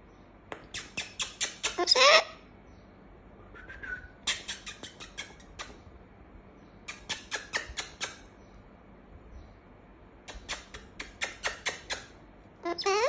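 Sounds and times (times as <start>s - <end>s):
cockatoo clicking: 0.5s - 1.8s, 4.2s - 5.8s, 6.9s - 8.3s, 10.2s - 12.2s
cockatoo squawk: 1.6s - 2.4s, 12.6s - 13.0s.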